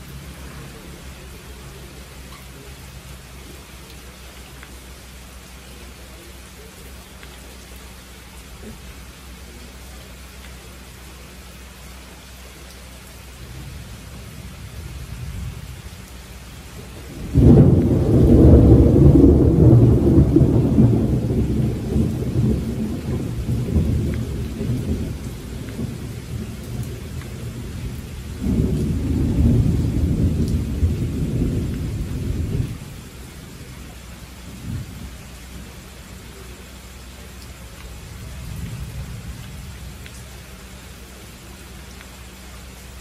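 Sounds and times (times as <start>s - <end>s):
rain falling: 0.0s - 43.0s
thunder rumbling: 13.4s - 36.4s, 37.9s - 40.6s.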